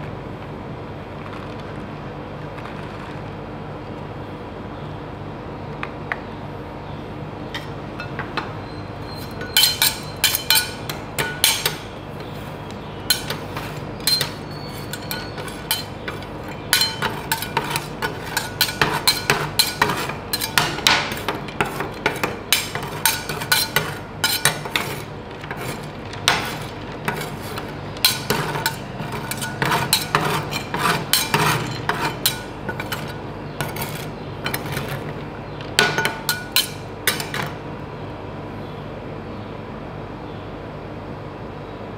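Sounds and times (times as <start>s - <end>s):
steady low hum: 0.0s - 41.9s
metal spatulas chopping on plate: 9.1s - 12.4s, 13.1s - 35.2s, 35.8s - 37.6s.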